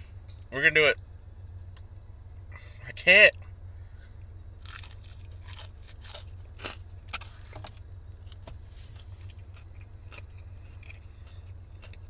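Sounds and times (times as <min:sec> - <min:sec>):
steady low hum: 0:00.0 - 0:12.0
crunching and chewing fried chicken: 0:04.1 - 0:12.0.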